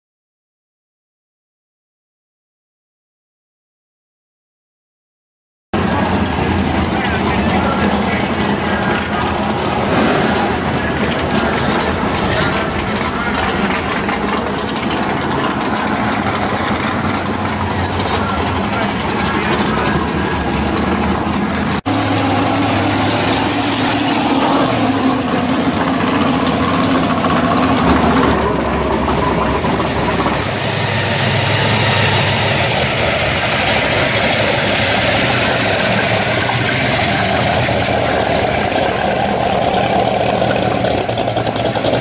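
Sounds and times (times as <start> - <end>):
car engine running at low speed: 5.8 - 42.0.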